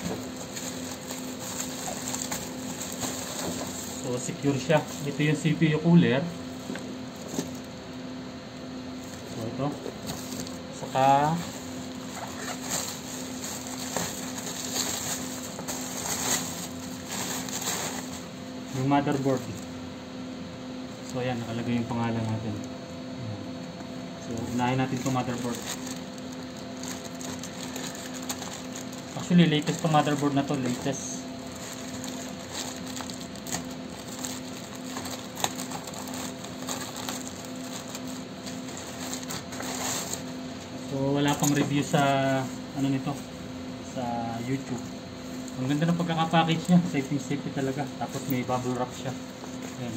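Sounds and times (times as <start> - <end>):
plastic bag crinkling: 0.0 - 5.5, 10.2 - 18.4, 24.2 - 40.4.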